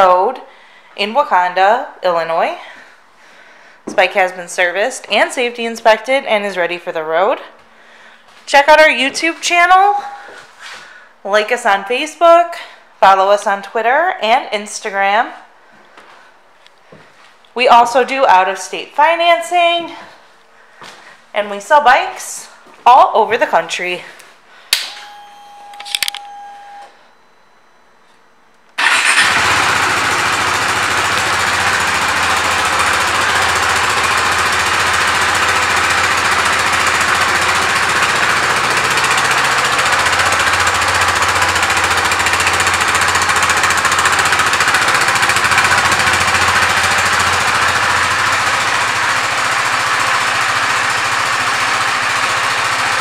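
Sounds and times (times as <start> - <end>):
brief steady tone: 24.8 - 28.2
motorcycle engine starting and idling: 28.8 - 53.0.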